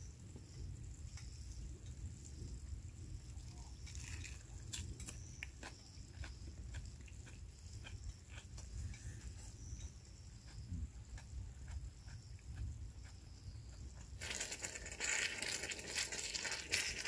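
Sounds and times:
man chewing crunchy food: 3.8 - 17.0.

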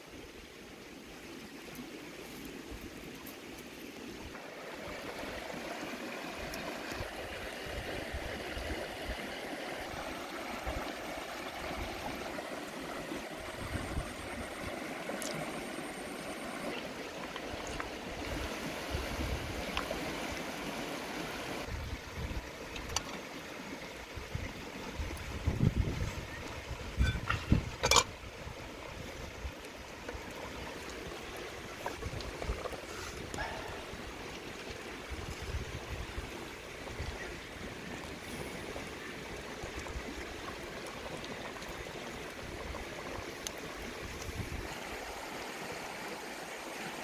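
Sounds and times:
river flowing over stones: 0.0 - 47.0.

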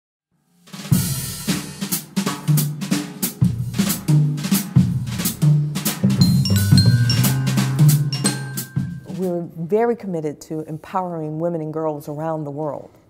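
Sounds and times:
intro music with drum beat: 0.6 - 9.3
held bass notes: 6.0 - 9.3.

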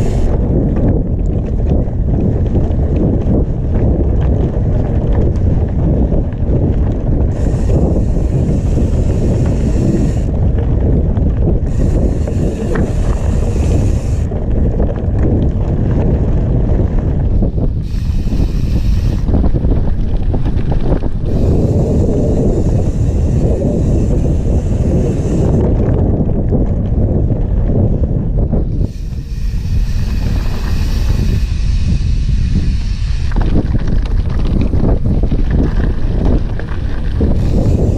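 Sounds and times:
bike knocks and rattles: 0.0 - 37.9
wind buffeting microphone: 0.0 - 37.9
higher hiss: 17.8 - 19.3, 28.8 - 33.3.

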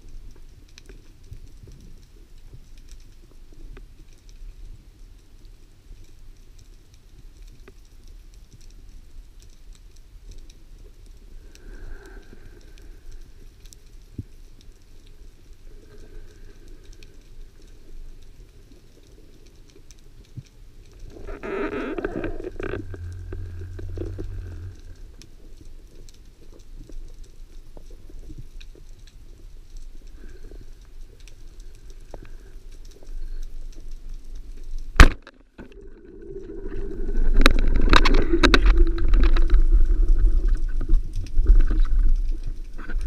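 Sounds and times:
faint clicks and crackles: 0.0 - 43.0
muffled underwater rumble: 10.1 - 43.0
loud rough sound: 21.0 - 25.4.

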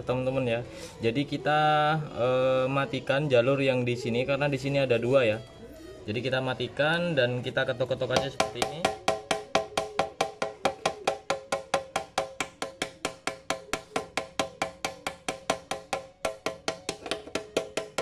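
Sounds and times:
small hammer tapping on metal: 8.1 - 18.0.

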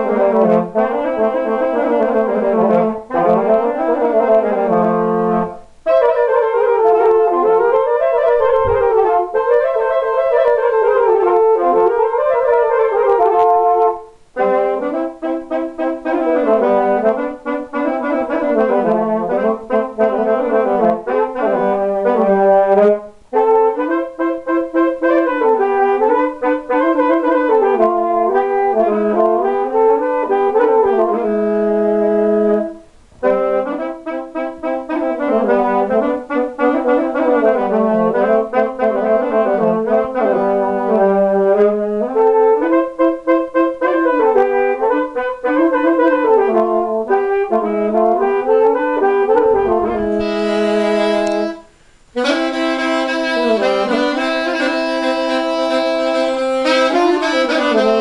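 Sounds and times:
saxophone duet: 0.0 - 58.0.

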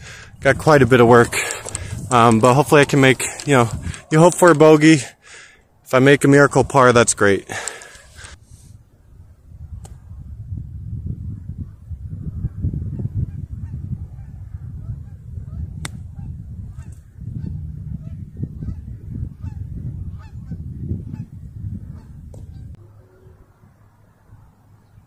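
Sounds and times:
wind rumble on microphone: 0.0 - 4.8, 6.4 - 25.0.

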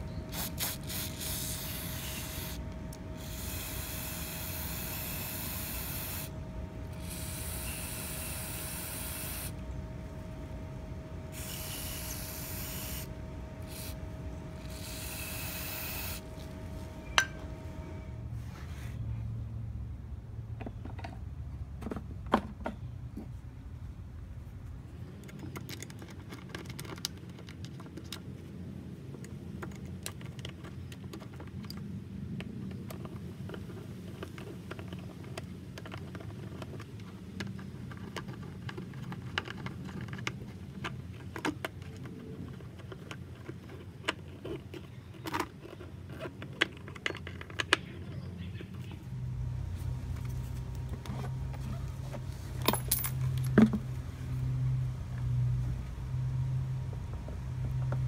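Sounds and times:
steady low hum: 0.0 - 58.0
screwdriver turning screws: 3.2 - 6.3.

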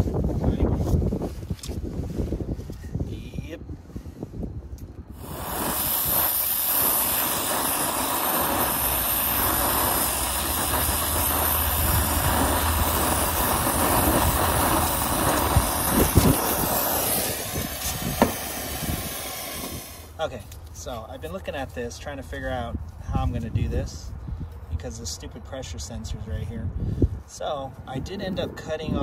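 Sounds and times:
torch burning steadily: 4.8 - 22.7.

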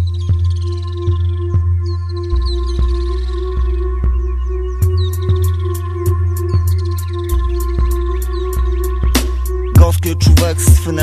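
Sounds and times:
drum beat with hi-hat ticks: 4.8 - 11.0.

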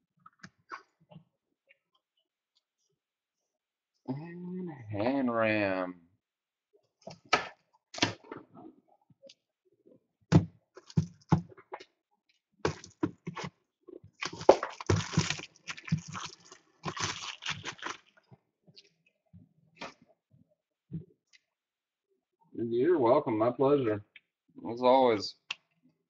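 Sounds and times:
packaging crinkling and rustling: 14.2 - 18.2.

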